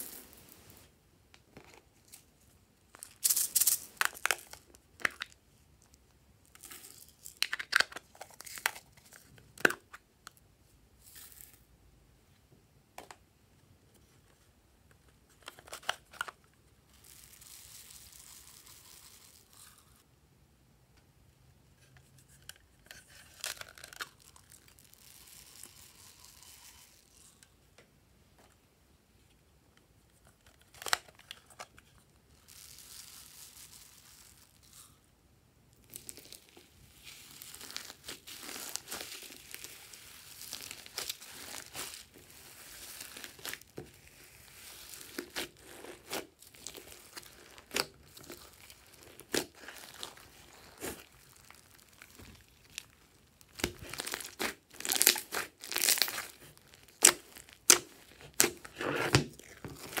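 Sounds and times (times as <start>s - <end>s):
foam beads pouring: 0.0s - 0.8s, 3.0s - 4.6s, 16.9s - 20.0s, 24.7s - 27.3s, 32.4s - 35.0s, 35.9s - 58.1s
hands squishing slime: 37.1s - 52.9s, 53.5s - 60.0s.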